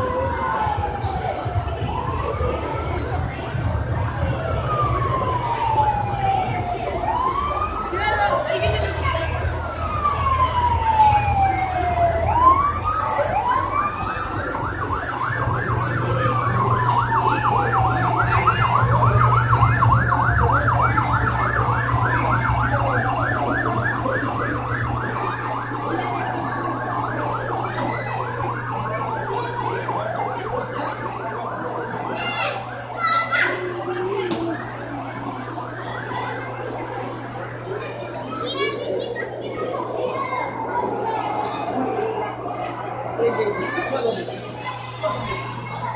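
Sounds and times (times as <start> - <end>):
toy electronic siren: 3.5 - 37.8.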